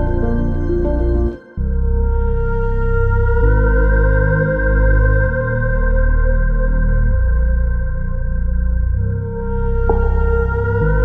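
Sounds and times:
sustained chords over low bass: 0.0 - 11.0.

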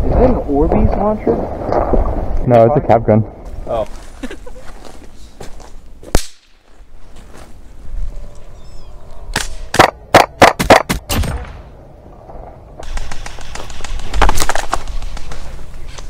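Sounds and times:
cap gun crack: 6.1 - 6.6, 9.3 - 11.5
airsoft rifle shots: 9.4 - 11.6, 12.8 - 15.4.

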